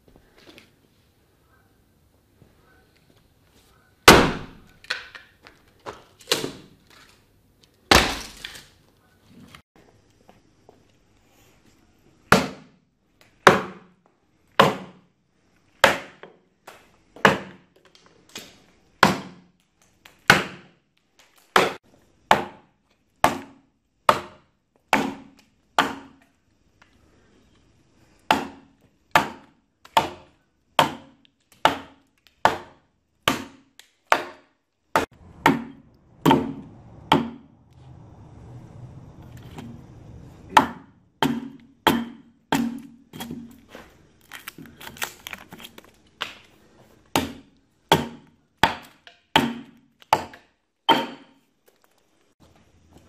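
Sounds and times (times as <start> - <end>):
axe chopping into log: 4.1 - 4.7, 7.9 - 8.6, 12.3 - 12.8, 13.5 - 13.9, 14.6 - 15.0, 15.8 - 16.2, 17.2 - 17.6, 19.0 - 19.5, 20.3 - 20.7, 21.6 - 22.6, 23.2 - 26.2, 28.3 - 37.4, 40.5 - 43.5, 47.1 - 51.4.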